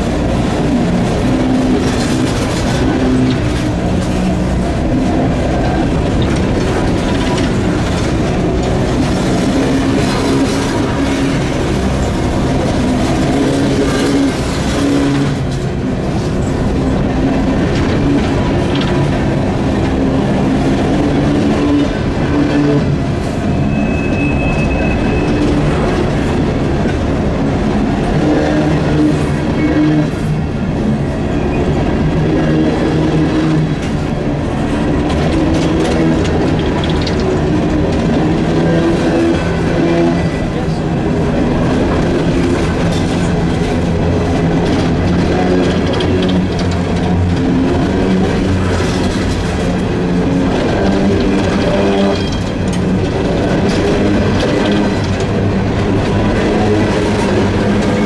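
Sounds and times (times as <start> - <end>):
train wheels clattering over rail joints: 0.0 - 58.0
high wheel squeal: 23.2 - 26.0, 51.6 - 52.8.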